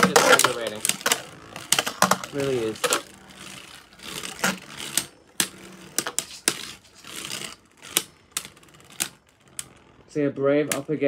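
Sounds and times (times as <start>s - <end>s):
spinning tops clattering: 0.0s - 9.8s.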